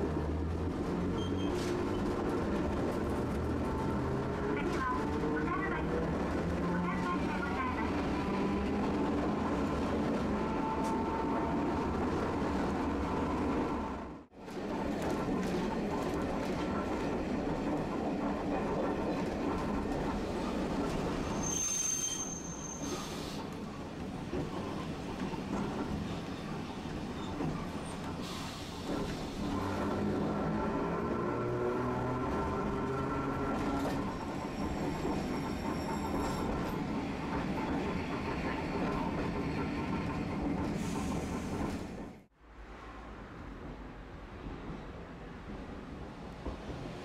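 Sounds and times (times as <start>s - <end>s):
streetcar wheels rumbling on rail: 0.0s - 47.0s
high-pitched wheel squeal: 1.2s - 1.7s, 21.3s - 23.3s.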